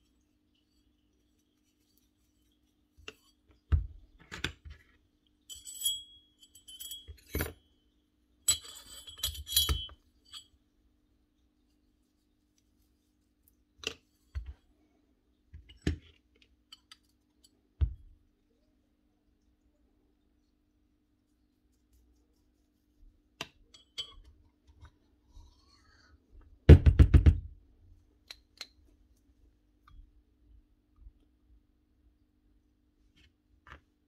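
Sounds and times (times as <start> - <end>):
ringing metallic clinks: 5.5 - 7.5.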